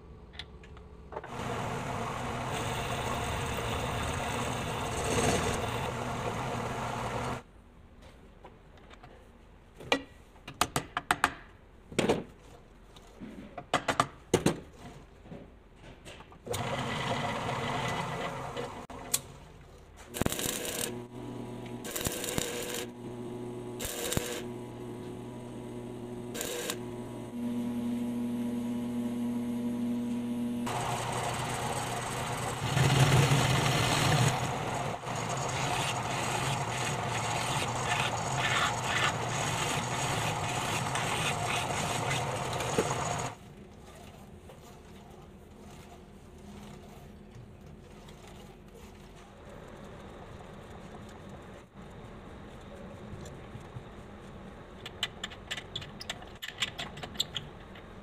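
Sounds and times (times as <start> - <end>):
lathe motor running: 1.3 - 7.4, 20.9 - 43.4.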